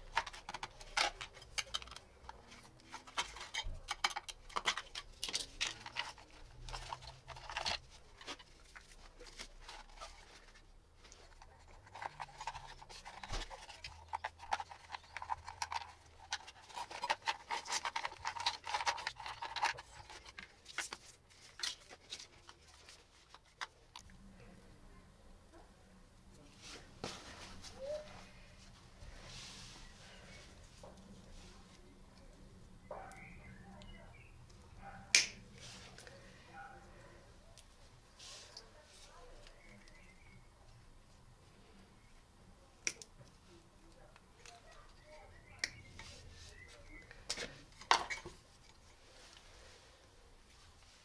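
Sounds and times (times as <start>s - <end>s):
screwdriver scraping plastic: 11.3s - 22.3s.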